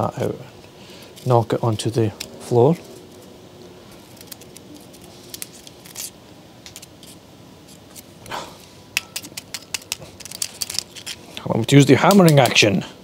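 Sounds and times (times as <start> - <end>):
screwdriver scraping carbon deposits: 9.0 - 12.6.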